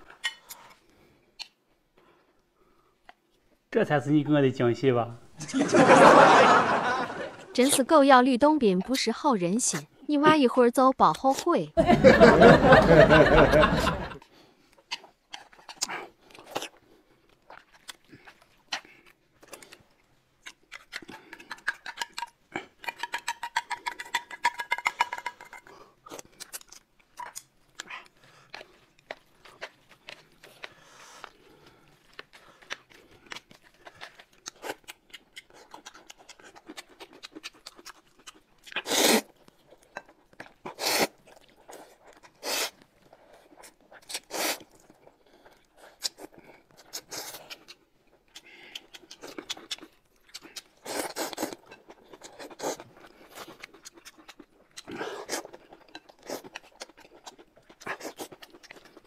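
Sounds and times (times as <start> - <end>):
chewing: 0.0 - 3.7, 13.4 - 59.0
chopsticks and utensils clicking: 20.7 - 25.7
loud short slurps: 38.8 - 39.3, 40.7 - 41.2, 42.4 - 42.8, 44.1 - 44.7, 50.8 - 51.6.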